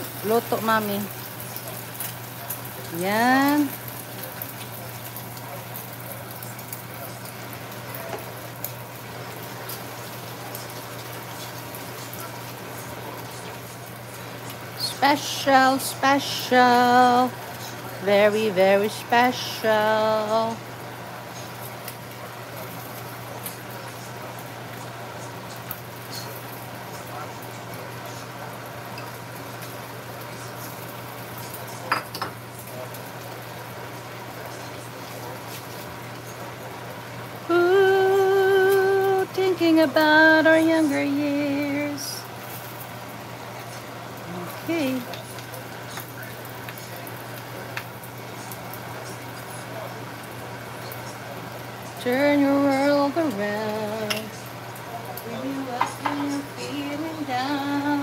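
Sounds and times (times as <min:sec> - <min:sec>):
egg sizzling in oil: 0:00.0 - 0:57.8.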